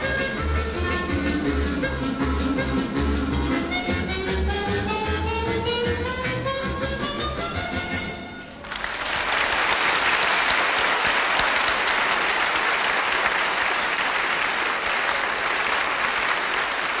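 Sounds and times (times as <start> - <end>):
music: 0.0 - 8.6
audience applauding: 8.6 - 17.0.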